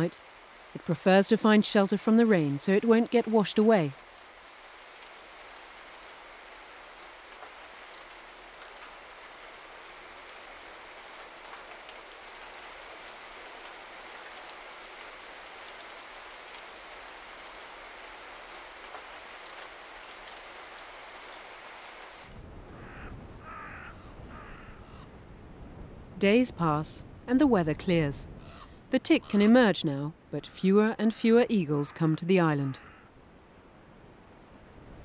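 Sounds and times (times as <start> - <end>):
raindrop ticks: 0.0 - 21.5
steady rain hiss: 0.0 - 24.7, 25.3 - 31.9.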